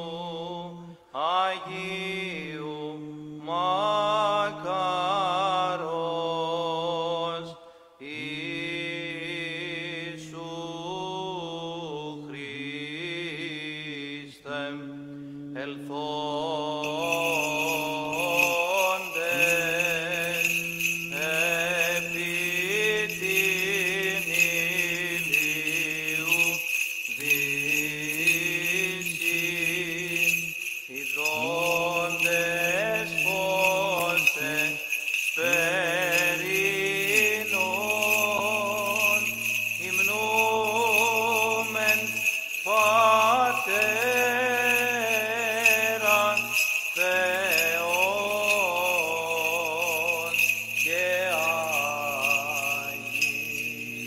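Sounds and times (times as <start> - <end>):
person chanting ornamented melody: 0.0 - 54.0
small bells jingling: 16.8 - 54.0.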